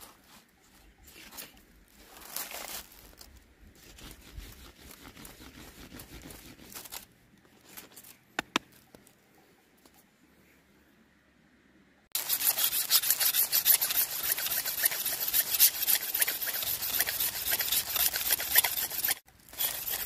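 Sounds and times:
bamboo tearing and scraping: 2.0 - 8.7, 12.1 - 20.0.

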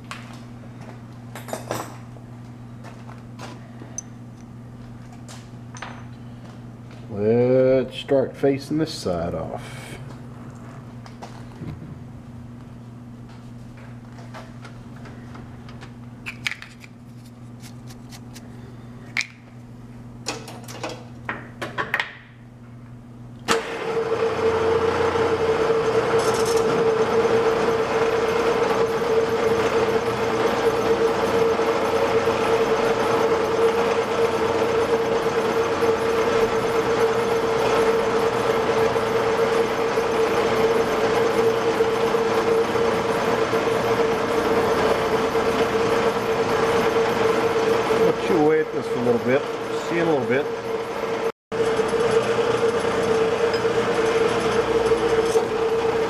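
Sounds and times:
metal lathe running: 23.5 - 56.0.

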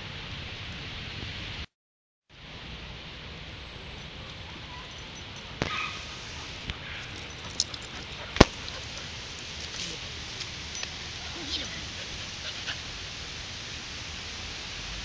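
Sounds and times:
steady outdoor hiss: 0.0 - 1.7, 2.3 - 15.0
dog giving a high cry: 5.6 - 6.2.

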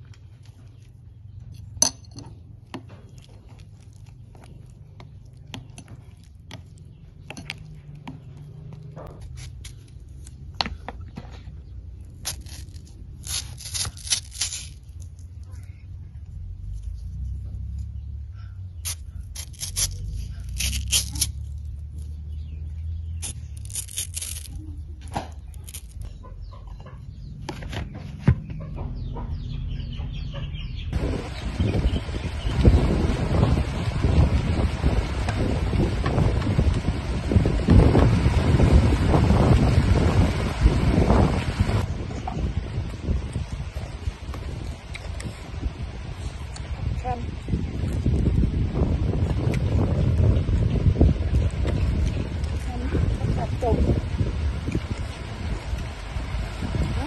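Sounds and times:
birds chirping: 0.0 - 12.7, 15.2 - 33.6
low outdoor rumble: 0.0 - 57.0
spoon stirring wet mixture: 2.6 - 9.9
knife cutting mango: 18.8 - 21.6.

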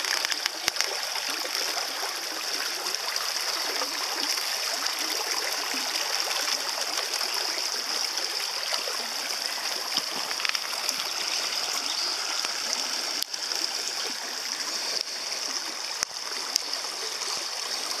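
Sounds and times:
small clicks: 0.0 - 1.0, 10.0 - 11.1
creek rushing over stones: 0.0 - 18.0.

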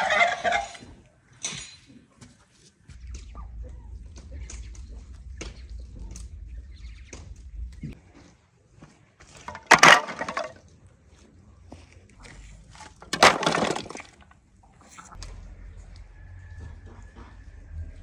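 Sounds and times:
wooden sticks clattering: 9.4 - 10.6, 12.8 - 14.3.

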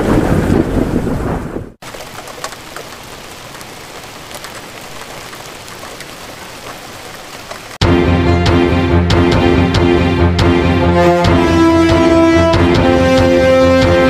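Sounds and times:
thunderclap: 0.0 - 3.4
rain pattering: 0.0 - 7.8.

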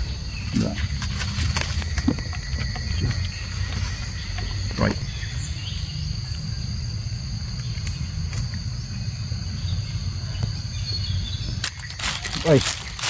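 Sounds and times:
constant low rumble: 0.0 - 13.0
insects droning: 0.0 - 13.0.

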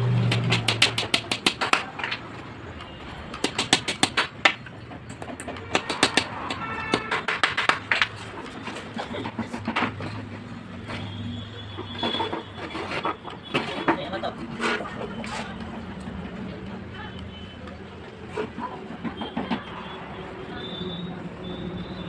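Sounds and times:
hammer driving nails into wood: 0.3 - 2.1, 3.4 - 4.6, 5.5 - 8.1.

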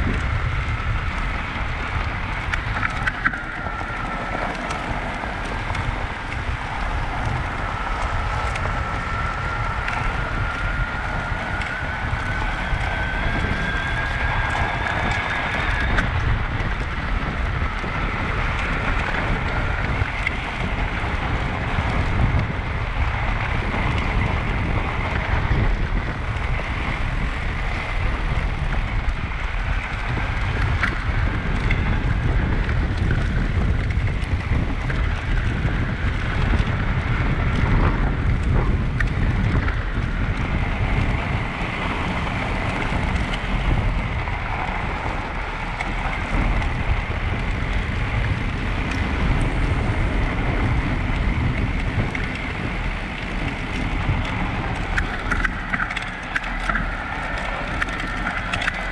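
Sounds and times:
tyres rolling over packed snow: 0.0 - 58.9
wind noise on microphone: 0.0 - 58.9.

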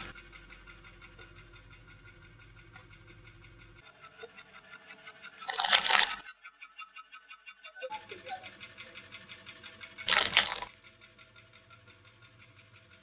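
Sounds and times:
chestnuts crunching under tyre: 5.4 - 6.2, 10.1 - 10.7.

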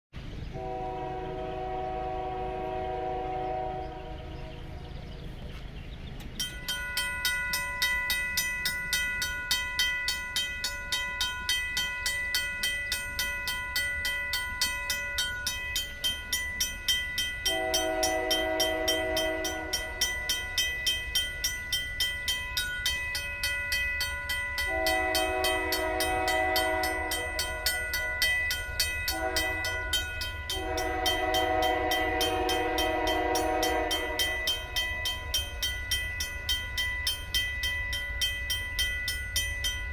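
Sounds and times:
locomotive horn blasts: 0.5 - 4.8, 17.4 - 20.7, 24.6 - 28.4, 29.0 - 34.8
mechanical crossing bell ringing: 6.3 - 39.9.

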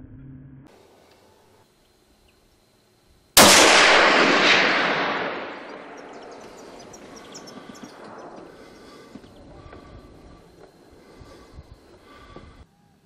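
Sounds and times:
gunshot echo: 3.4 - 9.9
rifle shot: 3.4 - 9.9.

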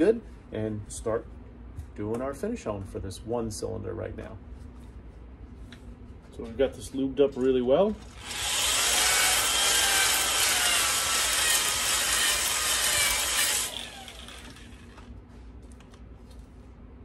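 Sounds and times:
electric drill honing cylinder: 8.1 - 15.1.

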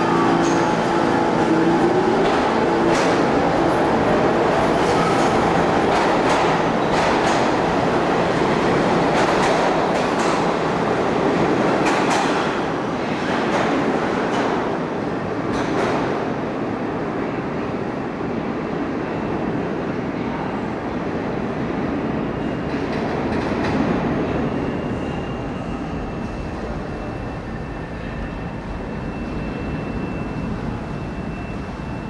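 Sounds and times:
subway train wheels rumbling: 0.0 - 32.0.

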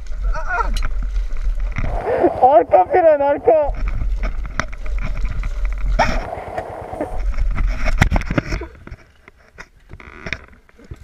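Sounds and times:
motorcycle engine labouring: 1.8 - 7.6.

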